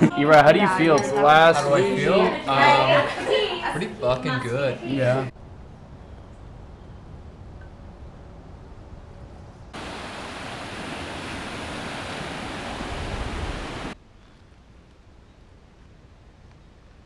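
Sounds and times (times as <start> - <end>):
faint outdoor background: 0.0 - 11.4, 13.9 - 17.0
ocean waves breaking on beach: 9.8 - 14.0.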